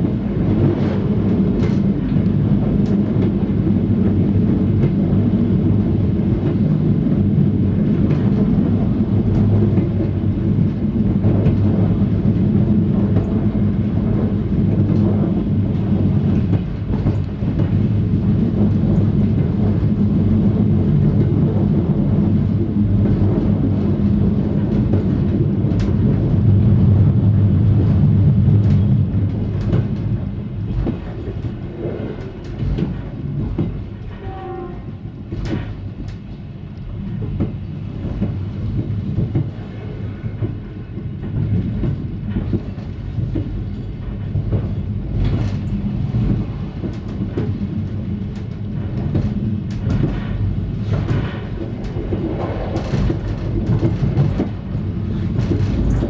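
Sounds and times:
train hum and rumble: 0.0 - 56.0.

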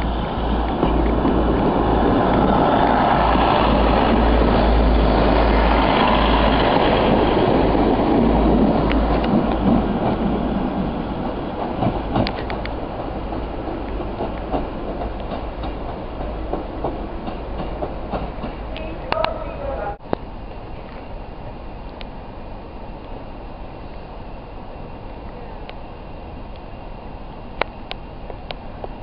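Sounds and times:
wheels clicking over rail joints: 0.0 - 19.4
train rumbling: 0.0 - 29.0.

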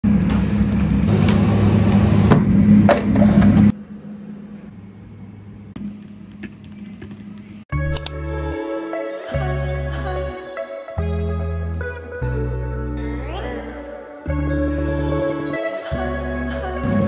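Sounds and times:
soft music: 7.7 - 17.0.

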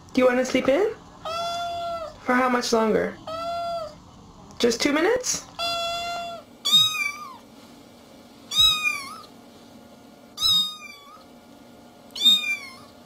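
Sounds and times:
cat meowing: 1.2 - 2.2, 3.2 - 4.0, 5.6 - 7.4, 8.5 - 9.3, 10.4 - 11.3, 12.2 - 13.0.

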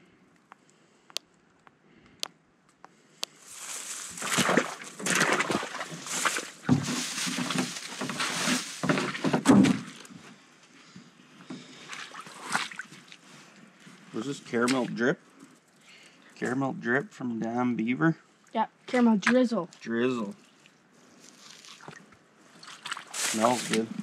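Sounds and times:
liquid sloshing and glugging: 3.6 - 10.1, 11.8 - 13.2, 20.3 - 24.0.

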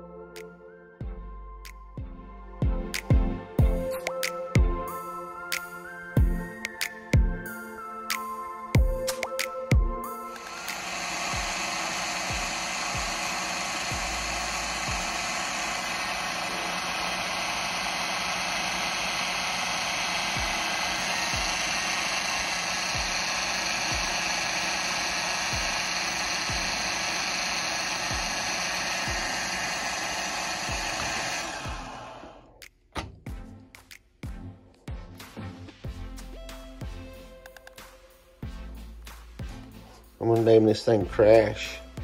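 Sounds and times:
drone motors whining: 8.8 - 32.6.

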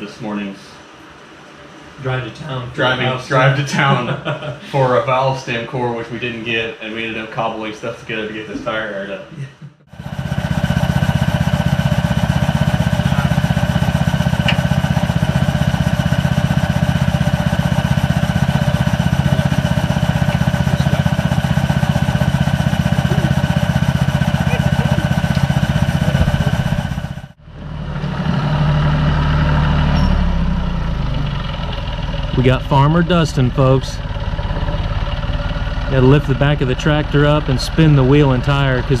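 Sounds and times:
engine running with rapid pulse: 9.8 - 39.0.

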